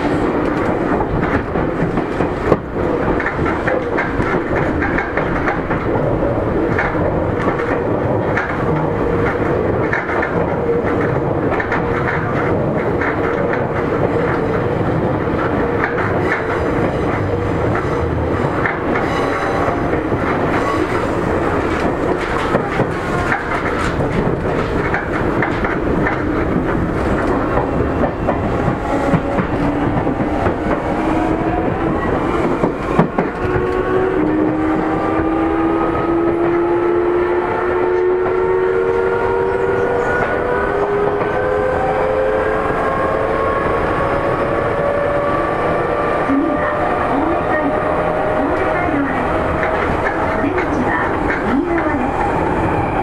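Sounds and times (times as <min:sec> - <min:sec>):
rail joint clacks: 0:00.0 - 0:53.0
train wheels rumbling on rail: 0:00.0 - 0:53.0.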